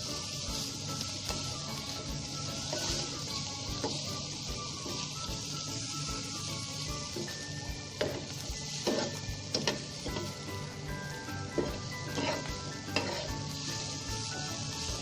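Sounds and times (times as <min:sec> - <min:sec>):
food sizzling in oil: 0:00.0 - 0:15.0
spatula scraping pan: 0:02.5 - 0:03.2, 0:08.0 - 0:10.5, 0:11.5 - 0:14.1.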